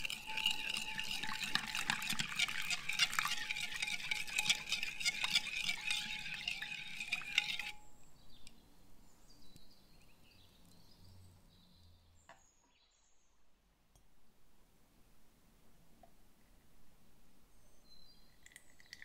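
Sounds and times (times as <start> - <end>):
liquid swishing: 0.0 - 7.8
spoon clinking in ceramic bowl: 0.0 - 7.8.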